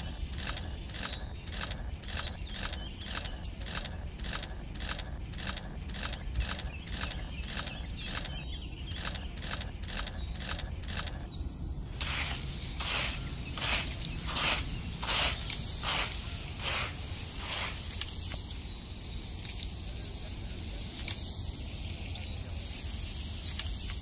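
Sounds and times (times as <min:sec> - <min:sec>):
dry sand rustling: 0:11.9 - 0:24.0
hand trowel scraping sand: 0:12.0 - 0:18.2.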